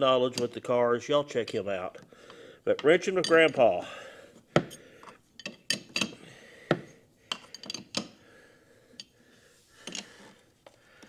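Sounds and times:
wrench clinking on metal nuts: 0:02.8 - 0:03.6, 0:05.0 - 0:06.2, 0:07.3 - 0:08.2.

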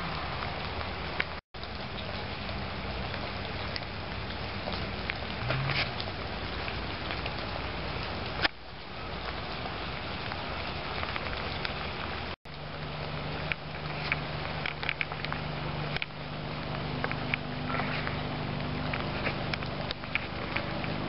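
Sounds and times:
steady rain: 0:00.0 - 0:21.0
drips and taps: 0:12.5 - 0:21.0.

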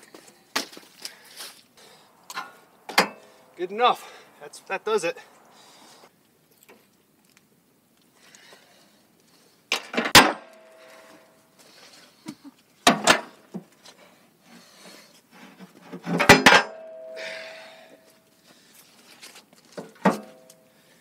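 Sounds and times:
metallic ringing tone: 0:16.6 - 0:18.2.

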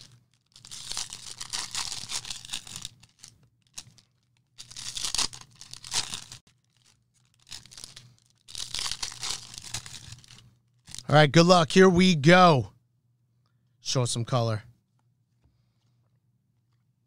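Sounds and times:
plastic wrappers tearing and crinkling: 0:00.0 - 0:11.1.

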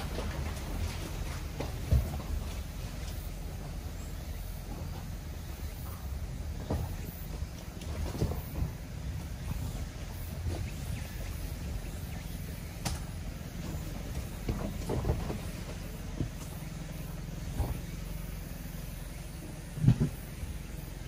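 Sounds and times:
knocks and bumps from vehicle body: 0:00.0 - 0:04.0, 0:06.4 - 0:18.2, 0:19.7 - 0:20.4
diesel engine running: 0:00.0 - 0:21.0.

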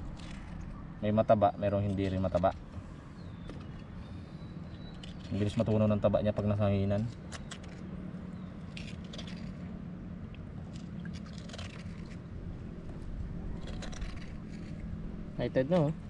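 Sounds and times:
sea urchins scraping and crunching: 0:00.0 - 0:00.8, 0:04.6 - 0:16.0.

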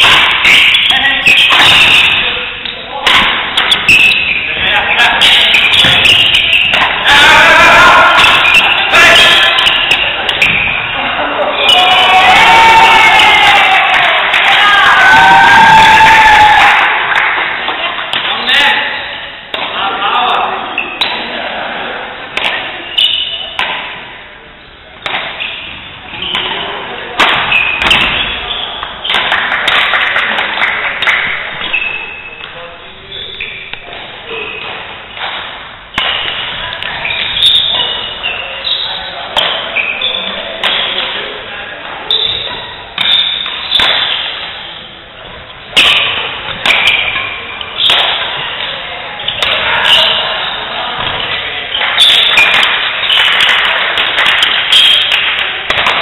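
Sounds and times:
racket hitting shuttlecock: 0:00.0 - 0:10.8, 0:22.4 - 0:24.1, 0:25.0 - 0:26.6, 0:27.2 - 0:31.9, 0:34.6 - 0:38.0, 0:39.4 - 0:39.7, 0:40.6 - 0:41.2, 0:42.1 - 0:44.6, 0:45.7 - 0:50.2, 0:51.0 - 0:56.0
shoes squeaking on court: 0:03.6 - 0:07.1, 0:08.1 - 0:11.0, 0:25.3 - 0:26.8, 0:27.4 - 0:29.4, 0:31.5 - 0:32.5, 0:35.9 - 0:41.0, 0:42.1 - 0:44.8, 0:46.0 - 0:53.5.

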